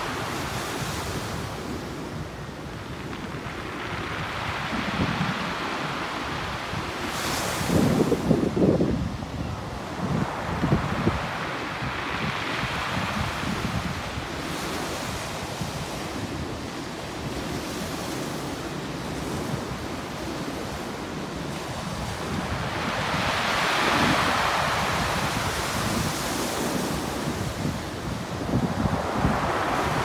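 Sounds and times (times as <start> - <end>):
waves on a pebble beach: 0.0 - 30.0
wind buffeting microphone: 0.0 - 30.0.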